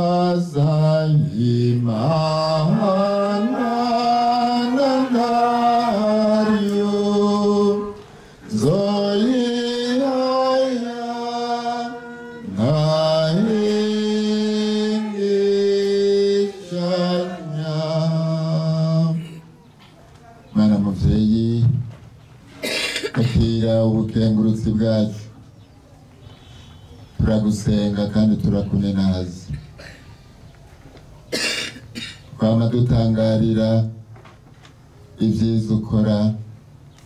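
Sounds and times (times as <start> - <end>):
person chanting a sung prayer: 0.0 - 19.6, 20.5 - 21.9.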